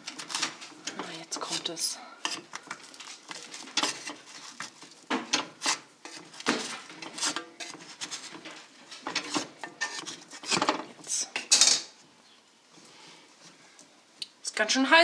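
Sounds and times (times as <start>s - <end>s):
metal pot clattering and knocking: 5.1s - 11.9s.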